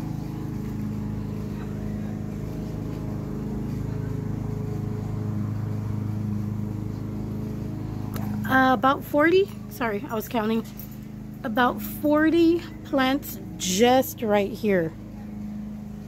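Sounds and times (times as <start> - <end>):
motor humming: 0.0 - 16.0.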